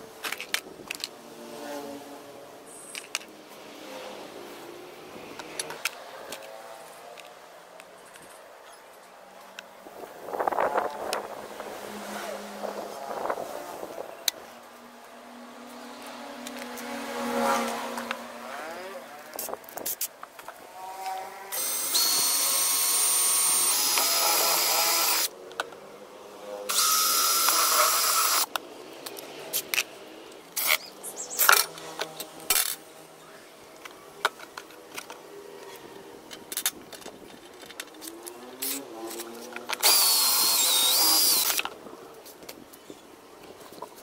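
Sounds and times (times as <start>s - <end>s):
cordless drill cutting plastic: 21.2s - 25.3s, 26.7s - 28.5s, 38.6s - 41.7s.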